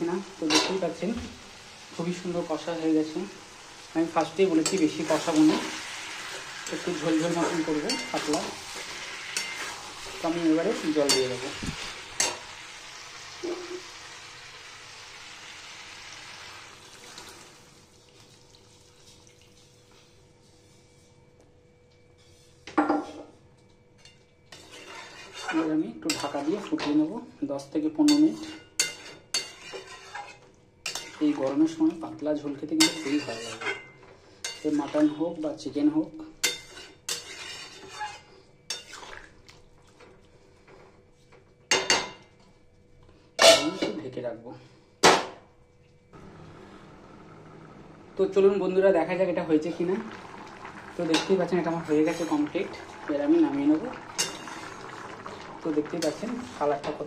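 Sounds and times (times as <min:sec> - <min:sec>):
water pouring into hot pan: 0:05.0 - 0:19.7, 0:49.1 - 0:57.0
spatula scraping metal pan: 0:07.2 - 0:11.4, 0:24.5 - 0:26.4, 0:28.2 - 0:31.2, 0:32.8 - 0:34.6, 0:36.4 - 0:39.1, 0:54.1 - 0:54.8
spatula clinking against pan: 0:07.9 - 0:08.3.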